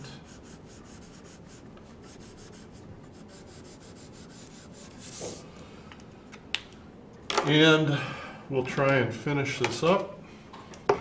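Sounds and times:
marker rubbing on paper: 0.0s - 5.4s.

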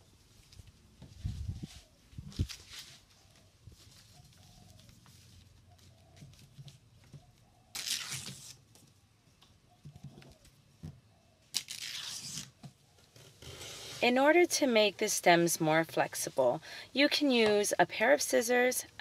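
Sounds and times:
stiff leaves rustling and crackling: 1.2s - 5.8s.

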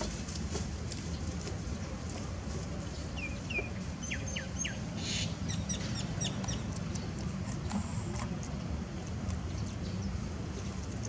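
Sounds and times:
small birds chirping: 2.8s - 7.8s, 9.3s - 11.0s.

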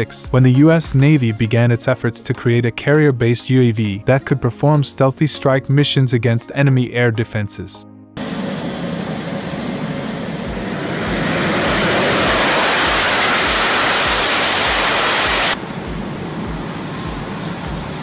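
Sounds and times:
jet engine roar: 8.2s - 18.0s
steady background rush: 8.2s - 18.0s.

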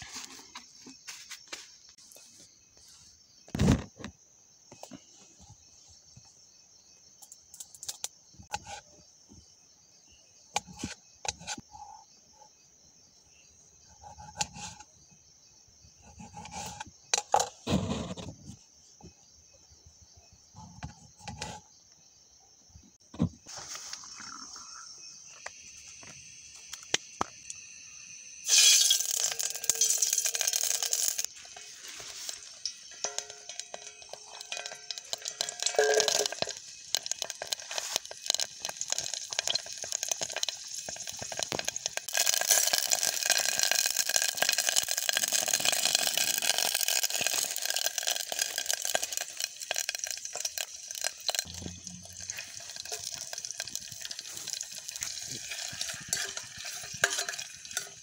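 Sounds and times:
crickets chirring: 0.0s - 58.0s
liquid pouring into metal pot: 28.4s - 58.0s.

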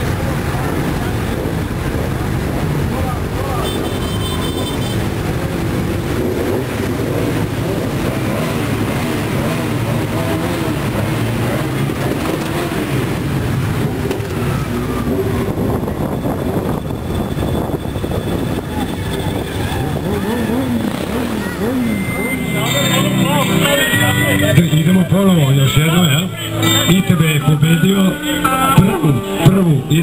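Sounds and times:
motorcycle engines rumbling: 0.0s - 30.0s.

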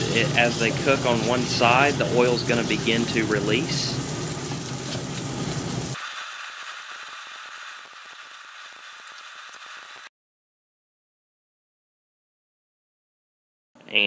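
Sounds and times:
pork sizzling in a wok: 0.0s - 10.1s.

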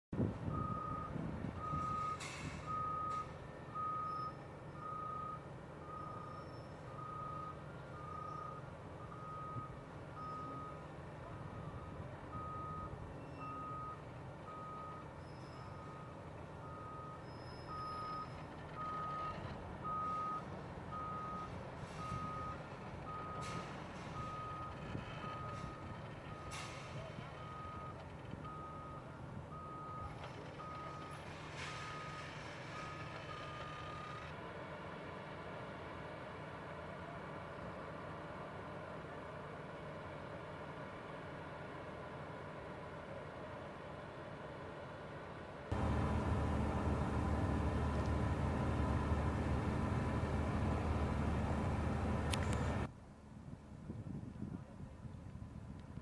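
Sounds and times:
diesel engines running: 0.2s - 52.9s.

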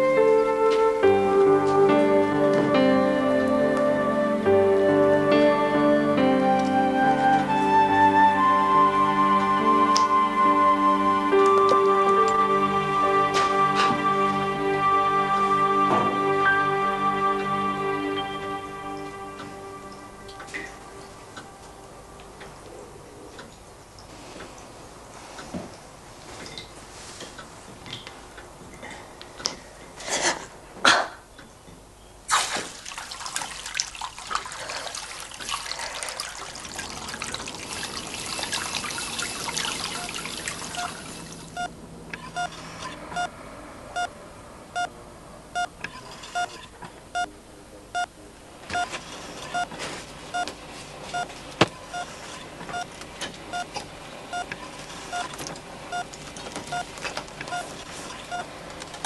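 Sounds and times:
liquid dripping and trickling: 32.3s - 41.6s
patient monitor beeping: 38.2s - 48.1s, 48.7s - 58.5s.

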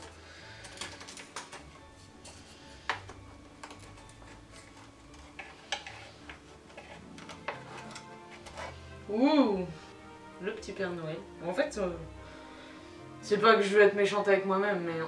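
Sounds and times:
wooden stick scraping metal mould: 2.2s - 9.0s.

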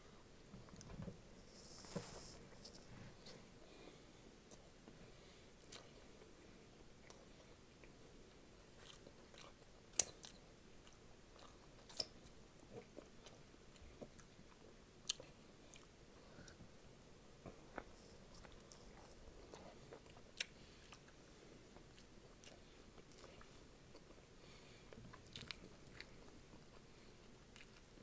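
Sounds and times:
chewing food: 8.7s - 16.6s, 17.4s - 24.2s, 24.9s - 28.0s.

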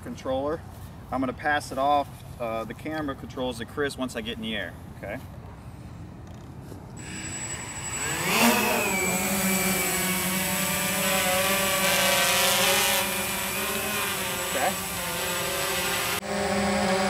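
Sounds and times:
quadcopter motors whining: 7.0s - 17.0s.

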